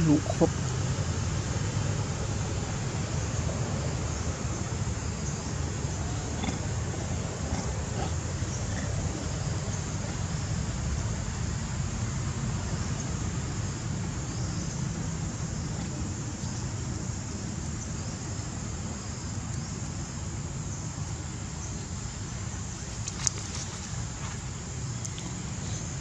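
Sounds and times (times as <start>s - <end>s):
insects droning: 0.0s - 26.0s.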